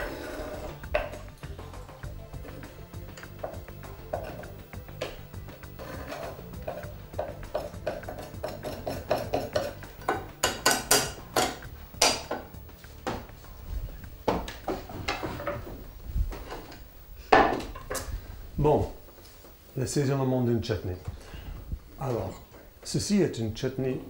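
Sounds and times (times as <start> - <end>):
knife scraping wooden cutting board: 4.1 - 4.6, 5.8 - 6.9
knife and board knocking against pot: 6.1 - 13.3.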